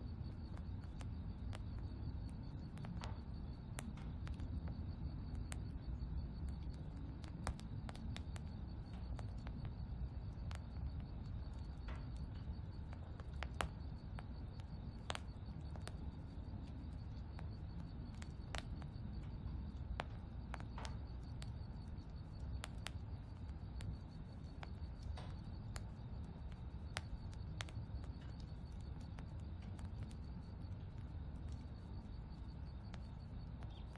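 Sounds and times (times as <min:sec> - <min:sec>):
steady low rumble: 0:00.0 - 0:33.9
sharp ticks and clicks: 0:00.2 - 0:33.9.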